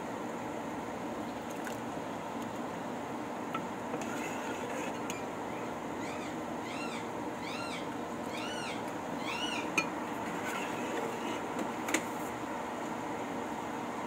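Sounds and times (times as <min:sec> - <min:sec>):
small animal high calls: 0:05.5 - 0:09.8.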